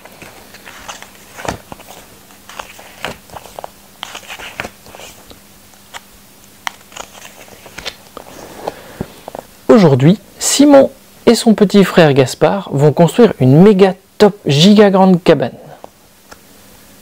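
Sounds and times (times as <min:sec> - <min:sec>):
book pages turning: 0:00.0 - 0:09.5.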